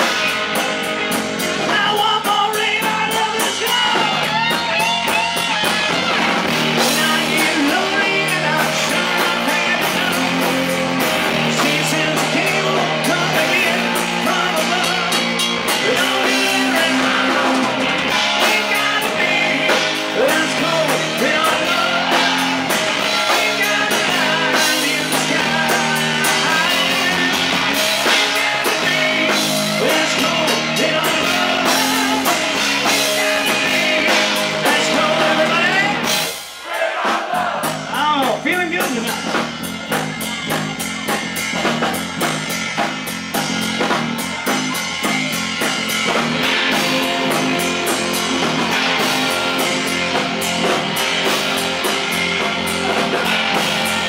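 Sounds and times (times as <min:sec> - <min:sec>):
distorted electric guitars: 0:00.0 - 0:54.0
drum kit: 0:00.0 - 0:54.0
man singing: 0:01.4 - 0:05.8, 0:06.6 - 0:36.3.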